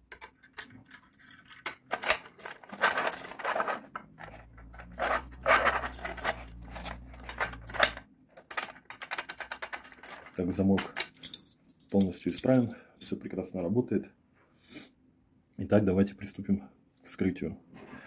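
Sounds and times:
lock clicking and rattling: 0.0 - 12.6
keys jangling on a ring: 4.2 - 8.0, 11.0 - 13.2.

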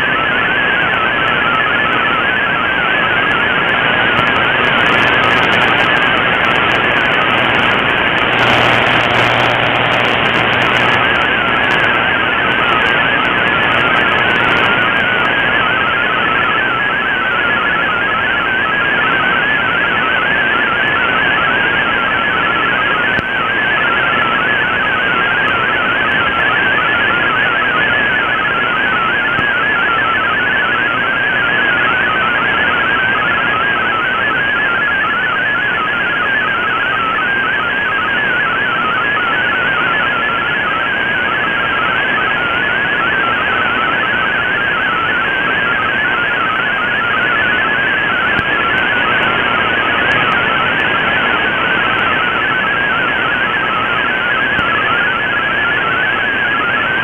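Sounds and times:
shortwave static hiss: 3.8 - 15.4.

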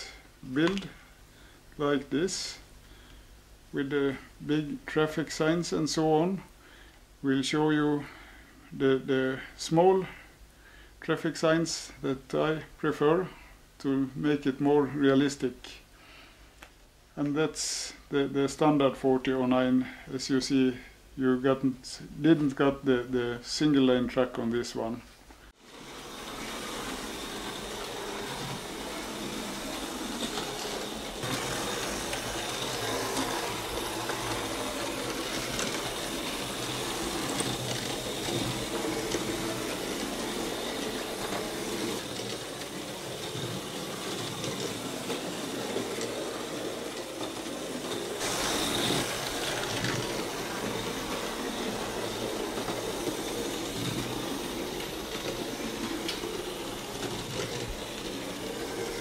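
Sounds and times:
slot car motors whirring: 25.7 - 59.0.

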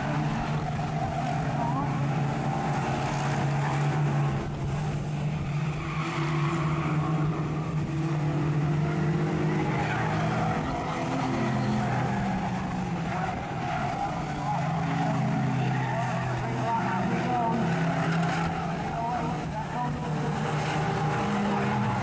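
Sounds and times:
race car engines: 0.0 - 22.0.

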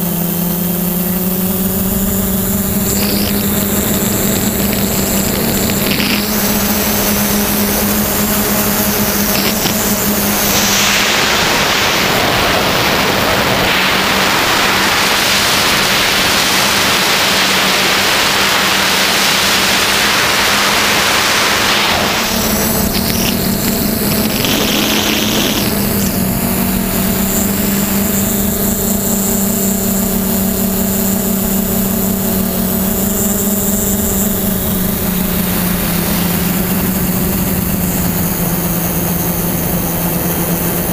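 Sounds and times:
drone propellers humming: 0.0 - 40.9
loud rushing noise: 9.0 - 28.0.

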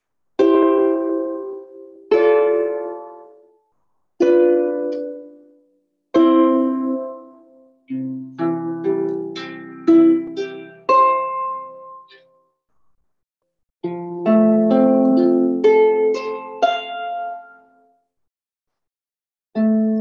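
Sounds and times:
harp plucked chords: 4.2 - 12.4.

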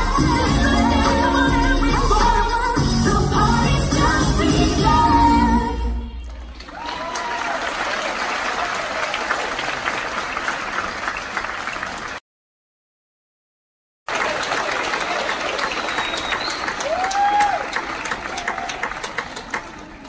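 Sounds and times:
audience applauding: 6.2 - 12.2, 14.1 - 20.0.

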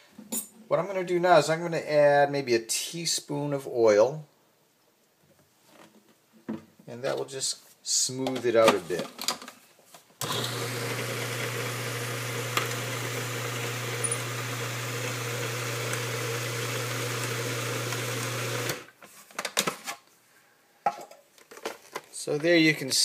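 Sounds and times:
food processor motor humming: 10.2 - 18.9.

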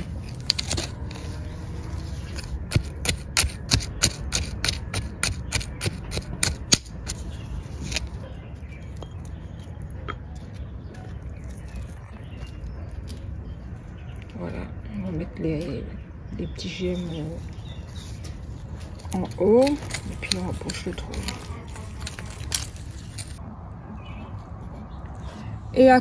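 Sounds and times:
trowel scraping stony soil: 0.0 - 9.6, 17.6 - 23.4
soil rustling: 0.0 - 9.9, 17.0 - 23.4.

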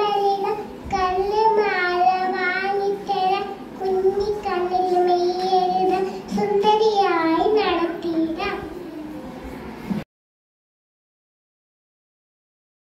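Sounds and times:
girl singing into a microphone: 0.0 - 8.8.

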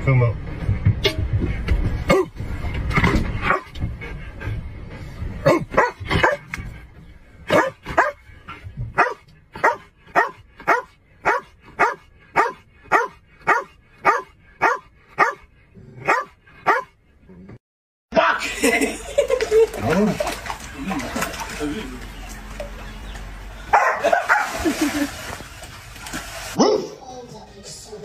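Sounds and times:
dog barking: 3.5 - 3.7, 5.4 - 6.5, 7.5 - 8.2, 9.0 - 17.0, 23.7 - 24.6, 26.6 - 26.9.

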